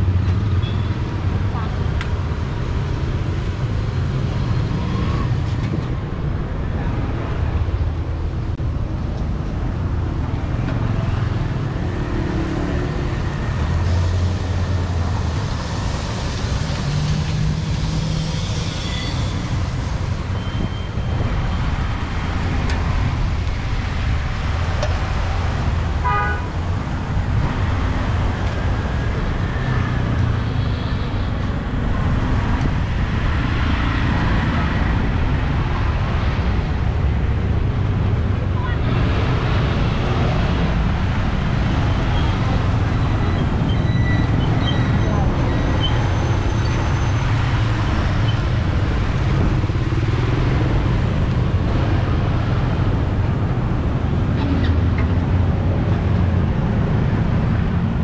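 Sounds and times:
road traffic rumble: 0.0s - 58.0s
car horn toot: 26.0s - 26.5s.

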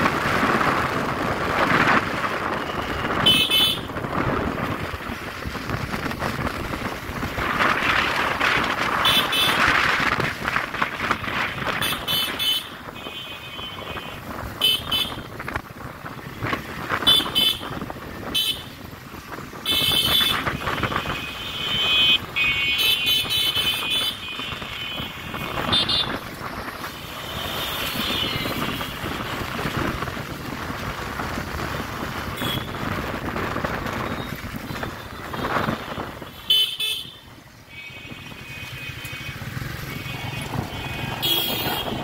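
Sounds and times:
rumble of engines and tyres: 0.0s - 42.0s
vehicle horns tooting: 2.5s - 4.0s, 9.0s - 9.7s, 11.7s - 15.3s, 17.0s - 18.8s, 19.7s - 26.2s, 27.2s - 29.1s, 32.3s - 32.8s, 34.2s - 42.0s.

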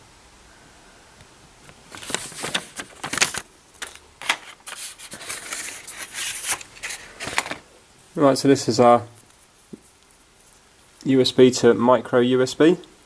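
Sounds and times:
cardboard and cable scraping and rustling: 1.9s - 7.7s.

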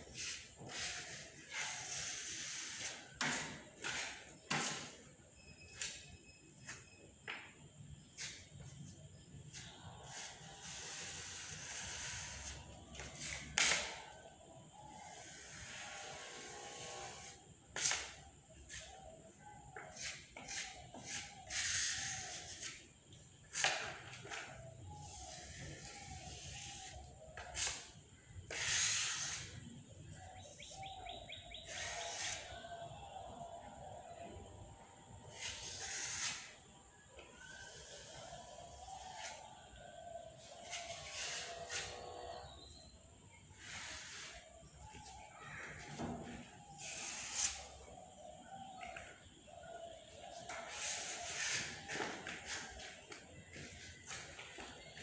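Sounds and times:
bird chirping: 0.0s - 55.0s
sandpaper rubbing on putty: 0.1s - 3.0s, 28.5s - 29.5s, 31.6s - 32.5s, 35.3s - 36.5s, 40.6s - 42.1s, 43.6s - 44.5s, 46.8s - 47.7s, 50.5s - 52.8s
sandpaper rubbing on wall: 0.1s - 5.0s, 9.5s - 14.0s, 14.9s - 19.0s, 19.8s - 22.9s, 25.0s - 29.6s, 31.6s - 32.6s, 35.3s - 36.6s, 37.6s - 39.8s, 40.4s - 42.4s, 43.6s - 44.7s, 46.8s - 47.8s, 50.4s - 54.3s.

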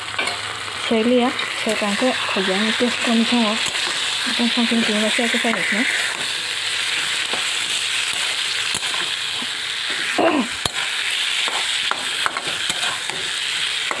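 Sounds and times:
fish sizzling in hot oil: 0.0s - 14.0s
metal spatula scraping pan: 1.6s - 14.0s.

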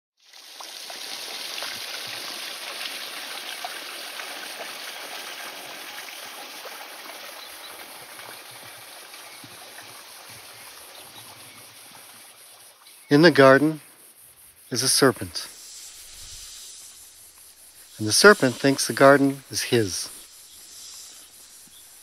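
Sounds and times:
trickling rush: 0.2s - 13.9s, 14.7s - 22.0s
small scattered ticks: 6.6s - 22.0s.

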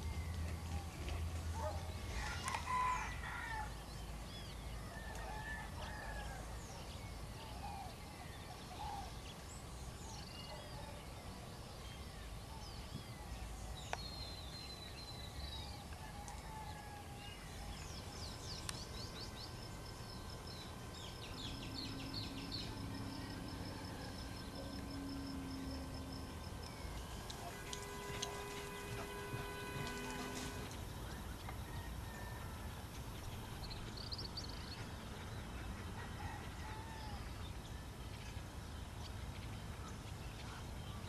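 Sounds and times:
birds chirping and trilling: 17.0s - 36.4s.

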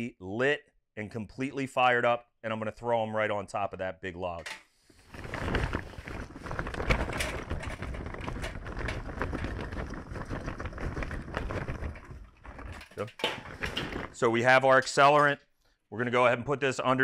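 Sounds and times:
charcoal clattering into metal: 12.6s - 14.2s.

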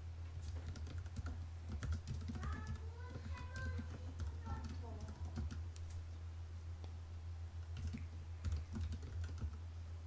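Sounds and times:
steady low hum: 0.0s - 10.0s
typing on computer keyboard: 0.4s - 5.6s, 7.7s - 9.6s.

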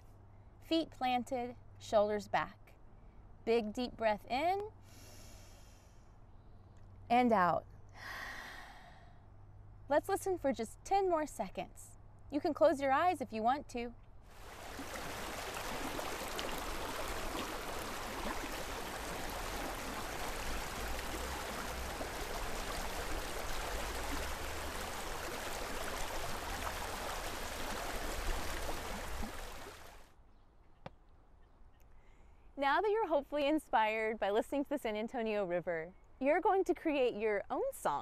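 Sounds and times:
water rushing over rocky rapids: 14.4s - 30.1s.

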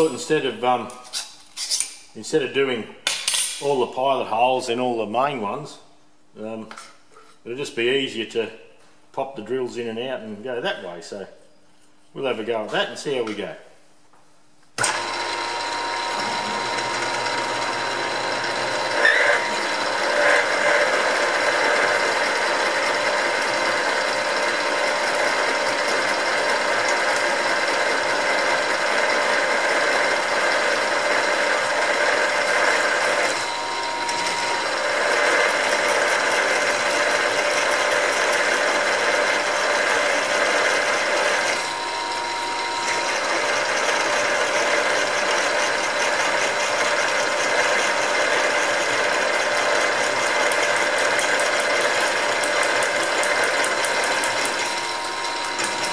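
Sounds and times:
drill grinding through metal: 14.8s - 55.9s
spindle whine: 33.2s - 35.6s, 53.3s - 55.9s.

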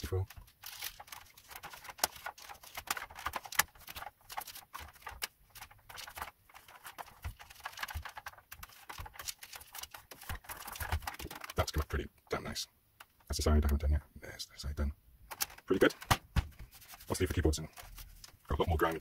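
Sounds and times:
tissue scrubbing across keyboard: 0.6s - 11.6s, 16.6s - 18.4s.

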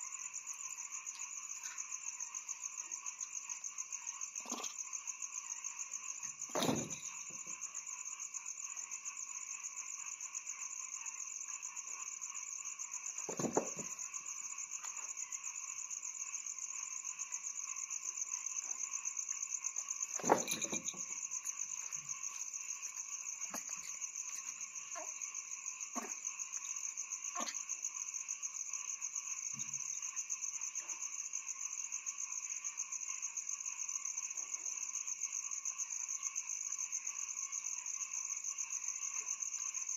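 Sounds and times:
night insects trilling: 0.0s - 39.9s
monkey thumping on furniture: 6.6s - 7.0s, 13.3s - 13.9s.

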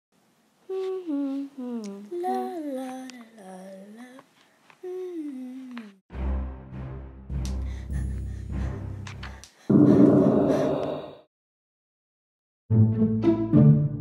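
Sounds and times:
person humming: 0.7s - 6.0s
deep booming music: 9.7s - 10.7s.

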